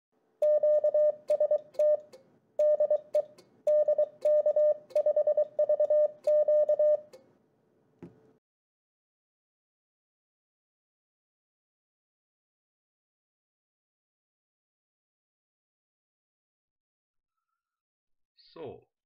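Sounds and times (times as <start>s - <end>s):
morse code beeps: 0.4s - 7.1s.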